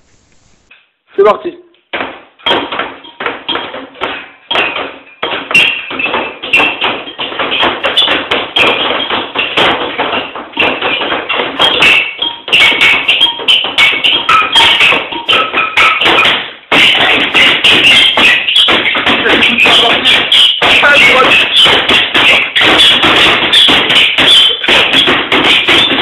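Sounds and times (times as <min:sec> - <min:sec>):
hands drumming on a table: 0:01.9 - 0:26.0.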